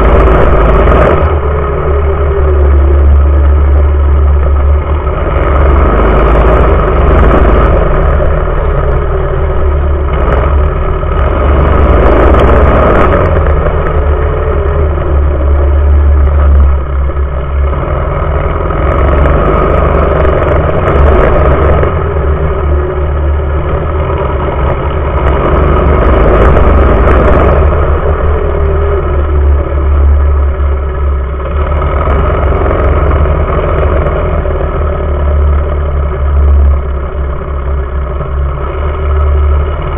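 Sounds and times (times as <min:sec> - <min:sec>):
mini bike engine revving: 0:00.0 - 0:16.9, 0:17.5 - 0:37.5.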